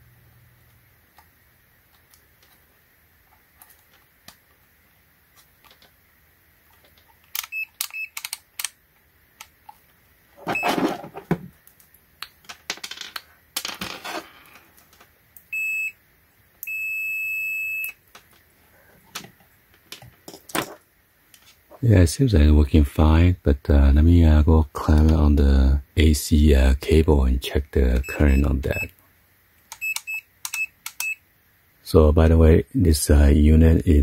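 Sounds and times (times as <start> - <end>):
meter continuity beeps: 15.5 - 16.0, 16.6 - 18.0, 28.0 - 28.9, 29.8 - 31.2.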